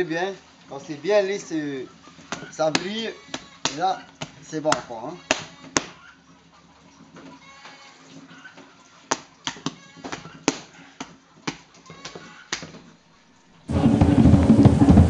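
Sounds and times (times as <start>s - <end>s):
pestle tapping paste on wood: 2.3s - 6.0s.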